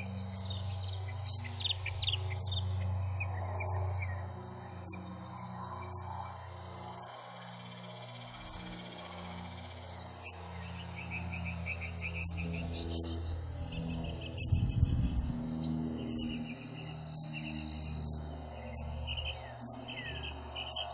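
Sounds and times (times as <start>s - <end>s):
crickets chirping: 0.0s - 20.9s
low drone of held tones: 0.0s - 20.9s.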